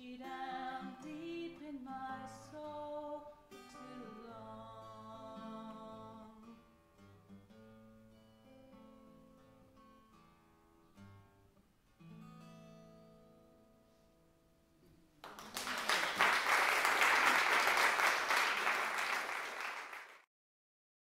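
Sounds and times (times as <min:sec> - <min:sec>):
acoustic guitar and fiddle: 0:00.0 - 0:07.2
audience applause: 0:15.2 - 0:20.3.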